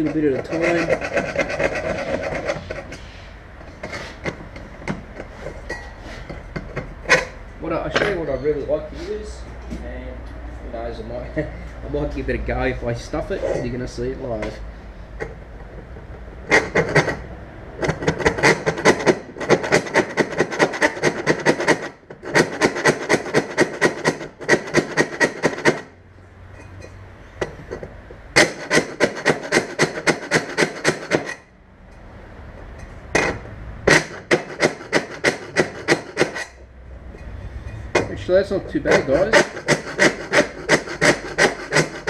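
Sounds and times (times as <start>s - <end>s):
hand file rasping on metal: 0.0s - 3.2s, 17.8s - 25.9s, 28.4s - 31.3s, 33.9s - 36.6s, 38.8s - 42.0s.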